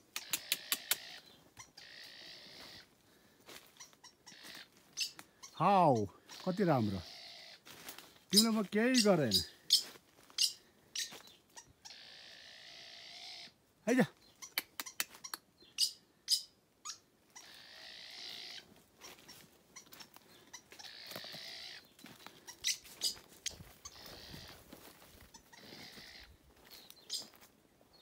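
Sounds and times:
rustling in dry leaves: 7.6 - 11.4, 17.4 - 27.5.

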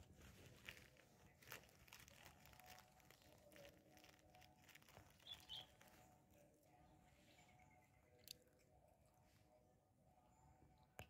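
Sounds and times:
crinkling crackles: 0.0 - 6.9.

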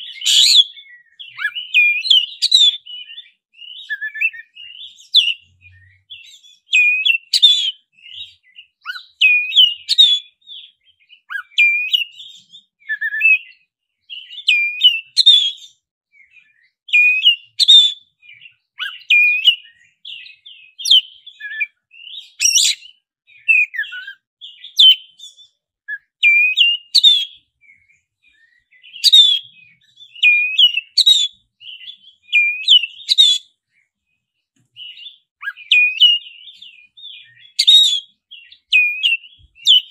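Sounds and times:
bird singing whistled phrases: 0.0 - 33.6, 34.7 - 39.9.

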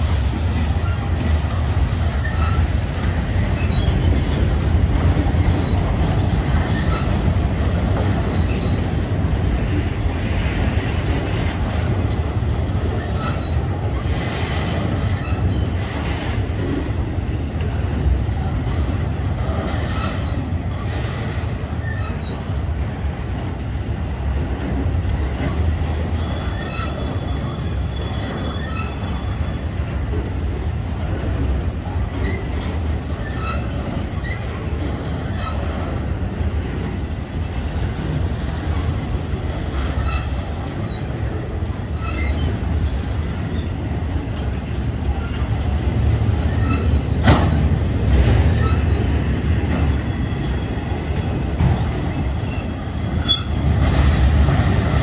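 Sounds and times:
wheels rumbling on rail: 0.0 - 55.0
high wheel squeals: 25.5 - 29.7, 45.1 - 47.7, 48.6 - 50.9, 51.8 - 53.7.

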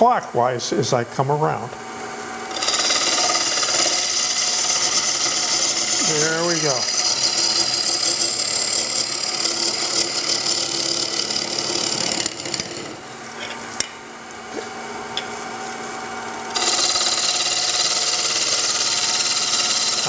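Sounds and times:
steady hum: 0.0 - 20.0
gouge cutting wood on lathe: 2.5 - 13.0, 16.6 - 20.0.

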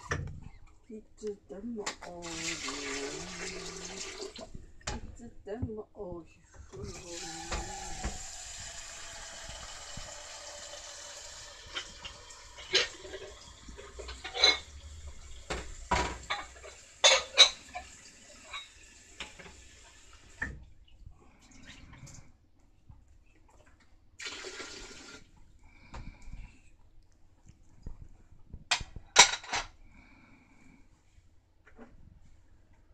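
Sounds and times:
water running: 1.2 - 22.3, 23.3 - 26.3.

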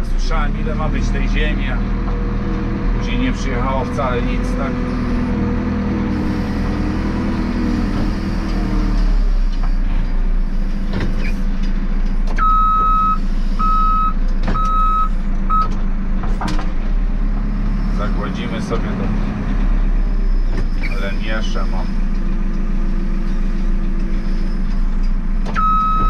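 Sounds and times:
diesel engine running: 0.0 - 26.0
reversing alarm beeping: 12.4 - 15.7, 25.6 - 26.0.

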